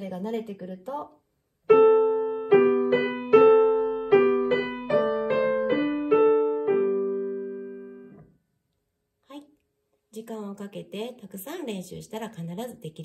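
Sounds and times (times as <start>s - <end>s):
piano chords: 1.7s - 8.3s.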